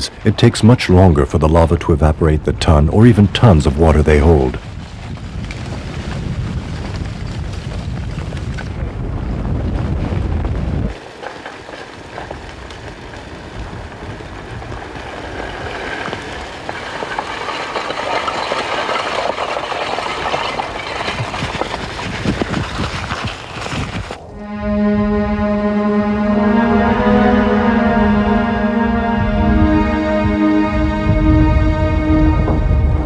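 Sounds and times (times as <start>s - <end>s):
lava crackling and hissing: 4.6s - 24.3s
low rumble: 24.2s - 33.0s
music: 24.3s - 33.0s.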